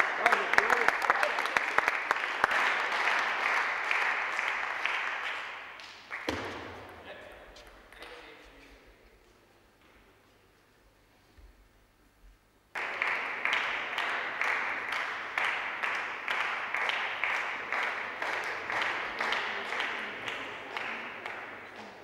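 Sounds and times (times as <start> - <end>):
spectators clapping in unison: 0.0 - 6.8, 12.7 - 22.0.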